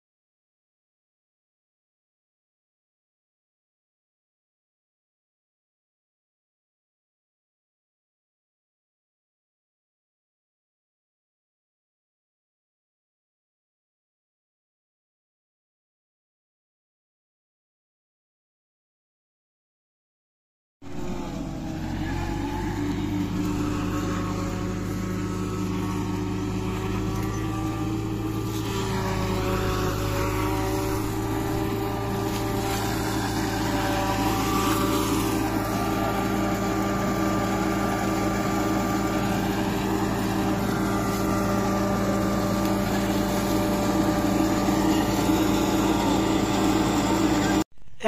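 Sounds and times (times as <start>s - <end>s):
forage harvester chopping maize: 20.9s - 47.6s
tractor engine under load: 20.9s - 48.0s.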